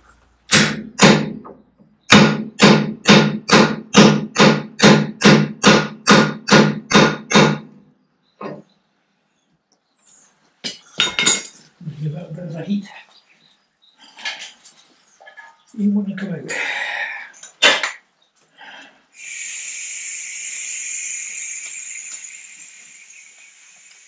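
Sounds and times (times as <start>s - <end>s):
hammer striking steel bar: 0.5s - 1.5s, 2.1s - 7.7s.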